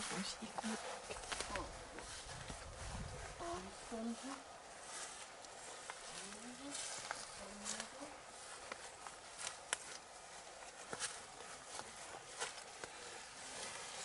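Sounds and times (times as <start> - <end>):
sharp clicks and crackles: 8.6 - 10.1.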